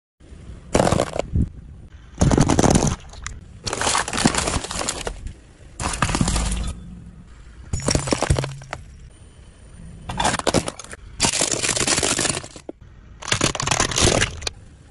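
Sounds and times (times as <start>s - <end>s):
tyre crushing brittle objects: 0.8s - 1.3s, 2.2s - 6.7s, 7.8s - 8.9s, 10.1s - 14.6s.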